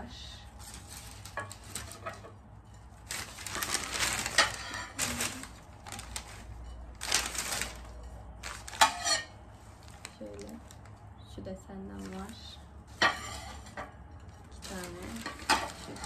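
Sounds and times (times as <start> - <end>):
packing wrap crinkling: 0.6 - 11.0, 14.5 - 16.0.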